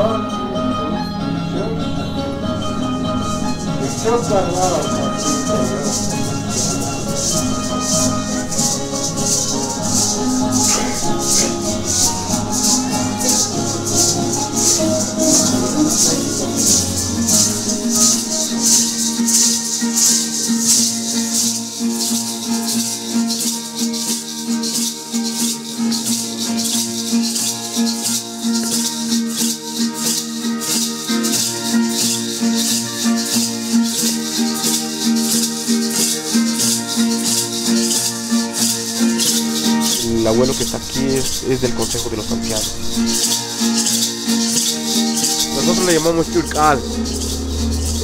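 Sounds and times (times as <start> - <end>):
plucked wooden harp: 0.0 - 21.1, 34.2 - 48.0
hand rattle shaken: 3.2 - 48.0.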